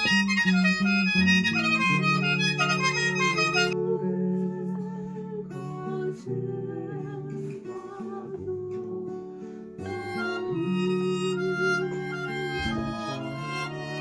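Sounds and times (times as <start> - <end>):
mouth organ playing chords: 0.0 - 4.2, 9.8 - 14.0.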